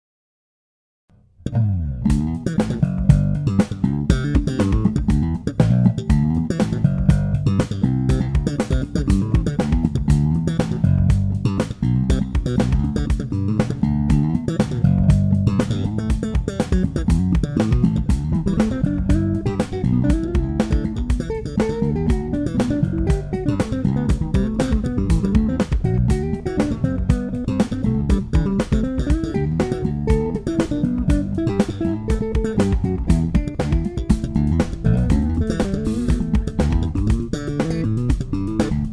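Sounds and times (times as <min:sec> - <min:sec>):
electric bass plucked notes: 0:01.1 - 0:38.9.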